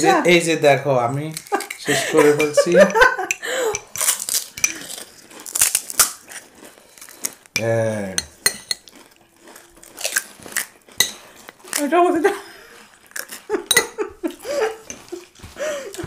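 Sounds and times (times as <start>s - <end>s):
puri shells cracking: 1.2s - 2.6s, 3.3s - 12.0s
spoons clinking on china plates: 1.3s - 5.0s, 6.9s - 9.0s, 11.0s - 11.2s, 13.7s - 14.2s.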